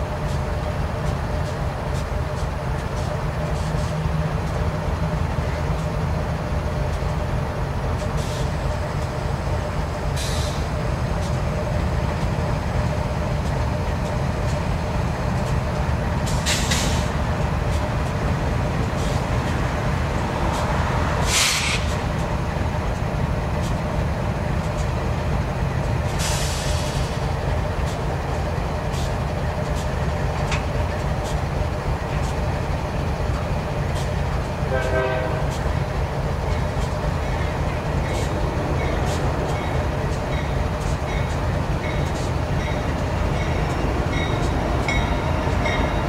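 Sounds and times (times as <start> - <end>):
diesel locomotives idling: 0.0 - 46.0
air brake hisses: 10.2 - 10.6, 16.3 - 17.1, 21.2 - 22.0, 26.2 - 27.2.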